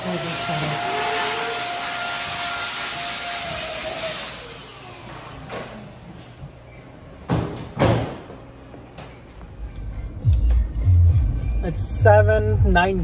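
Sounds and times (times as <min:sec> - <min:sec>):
blower motor whining: 0:00.0 - 0:06.3.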